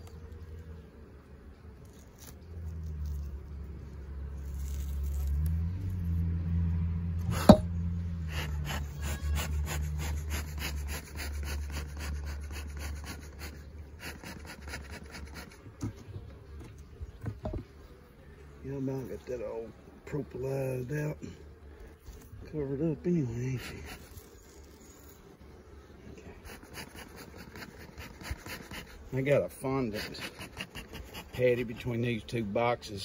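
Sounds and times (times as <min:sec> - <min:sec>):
honeybees humming: 0:00.0 - 0:33.0
rapid scratchy strokes: 0:08.3 - 0:16.1, 0:22.0 - 0:25.4, 0:26.3 - 0:32.4.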